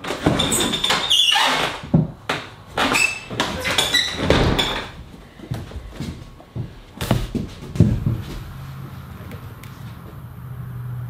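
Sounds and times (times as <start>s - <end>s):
door squeaks: 0.0s - 1.9s, 2.8s - 5.0s
wooden door opening and shutting: 0.0s - 5.1s
thuds: 1.8s - 8.5s
footsteps: 1.8s - 10.3s.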